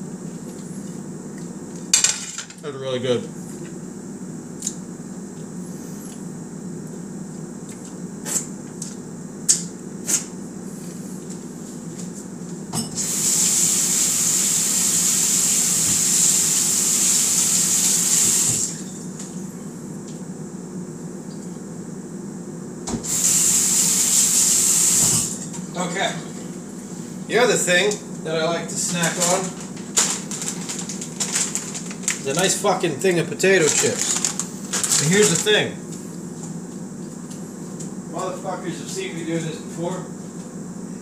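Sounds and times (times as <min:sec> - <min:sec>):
steady low hum: 0:00.0 - 0:13.0, 0:18.6 - 0:41.0.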